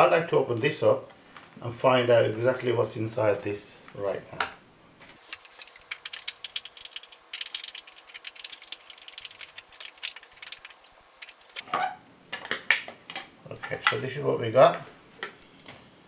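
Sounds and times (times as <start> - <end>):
screwdriver clicking and rattling: 5.2 - 11.6.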